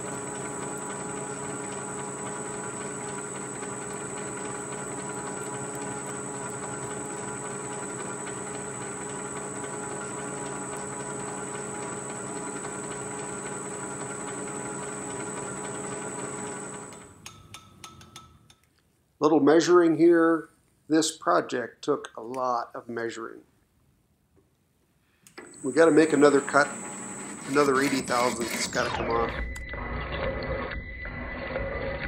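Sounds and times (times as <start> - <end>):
metal lathe cutting: 0.0 - 17.0, 25.5 - 32.0.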